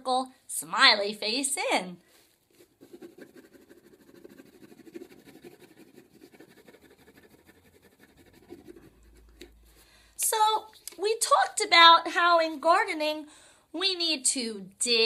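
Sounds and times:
crayon scratching on paper: 2.6 - 9.8.

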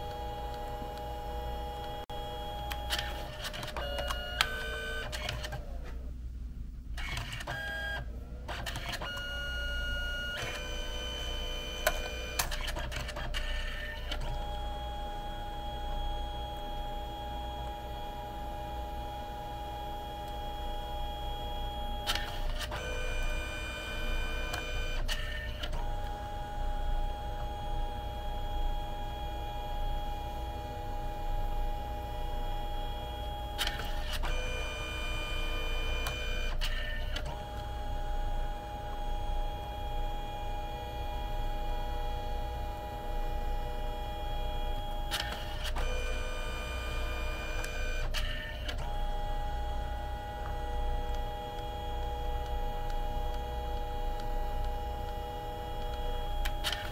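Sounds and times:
printer motors whining: 0.0 - 6.1, 7.0 - 56.9
printer mechanism clicks: 47.6 - 56.9.

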